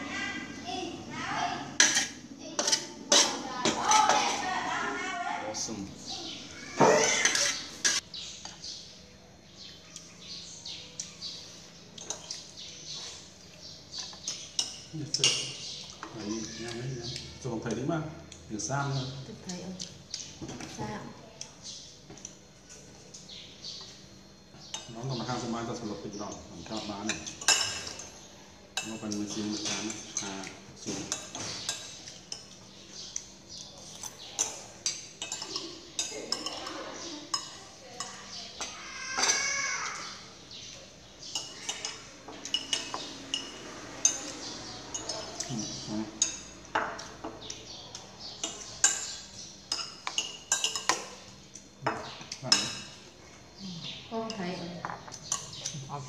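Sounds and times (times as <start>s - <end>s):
small birds chirping: 0.0s - 56.0s
metal spoons clinking on ceramic: 1.8s - 4.2s, 7.0s - 8.0s, 13.9s - 16.2s, 26.6s - 28.2s, 28.8s - 39.4s, 41.2s - 53.0s.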